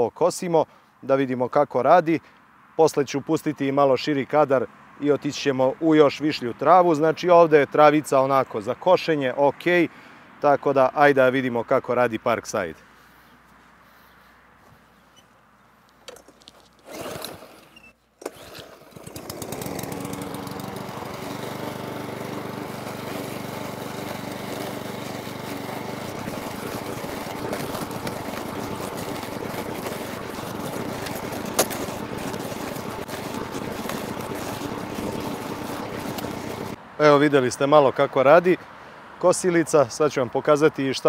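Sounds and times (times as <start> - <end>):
lawn mower engine running: 16.0 - 36.8.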